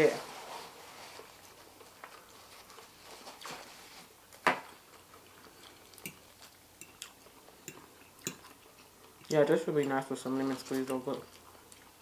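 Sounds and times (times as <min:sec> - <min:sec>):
fork clicking on plate: 0:06.8 - 0:08.6.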